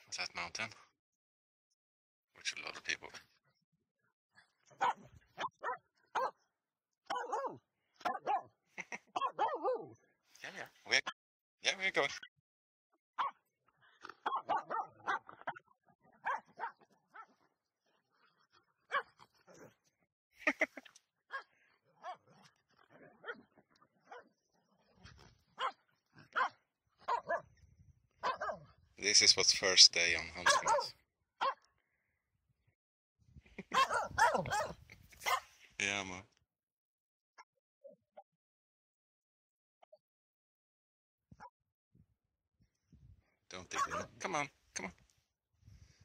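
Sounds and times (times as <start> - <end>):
dog whining yelps: 4.8 - 6.4, 7.1 - 8.5, 9.2 - 9.9, 14.2 - 15.6, 16.2 - 17.3, 27.1 - 27.4, 28.2 - 28.6, 30.5 - 31.6, 33.7 - 35.4
dog yipping barks: 4.8 - 6.4, 7.1 - 8.5, 9.2 - 9.9, 13.2 - 13.4, 14.2 - 15.6, 16.2 - 17.3, 18.9 - 19.7, 21.3 - 22.3, 25.6 - 27.5, 28.2 - 28.7, 30.4 - 31.7, 33.7 - 35.5, 43.7 - 44.1.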